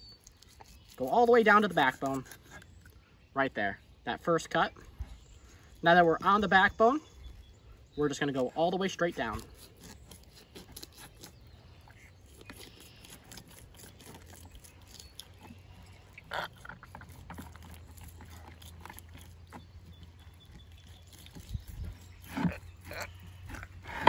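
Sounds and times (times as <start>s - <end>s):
knife ticking across fish bones: 12.3s - 15.6s.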